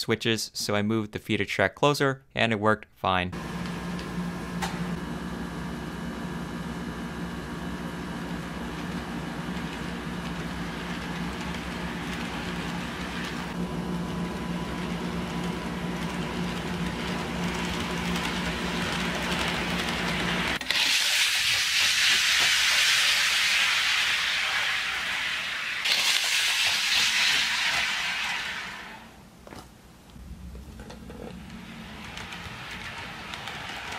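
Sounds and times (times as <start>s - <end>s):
model train motor humming: 8.7s - 13.6s, 14.7s - 28.9s, 31.4s - 33.9s
loud steady hiss: 20.6s - 29.4s.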